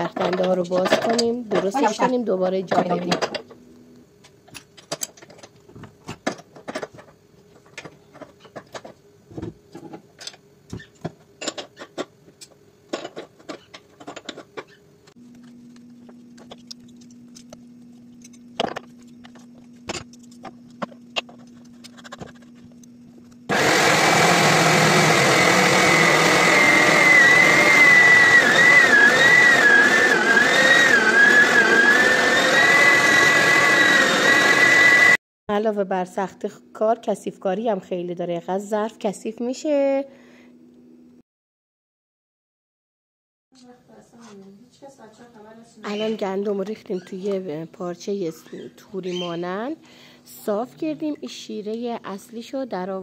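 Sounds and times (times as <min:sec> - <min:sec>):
clicks and scraping by hand: 0:11.5 - 0:23.4
electric meat grinder whining: 0:23.5 - 0:35.2.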